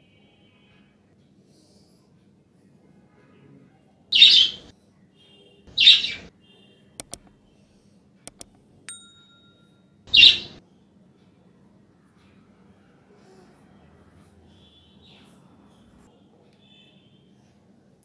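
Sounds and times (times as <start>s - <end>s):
mouse clicks: 7.0s - 7.4s, 8.3s - 8.6s
bell ding: 8.9s - 10.0s.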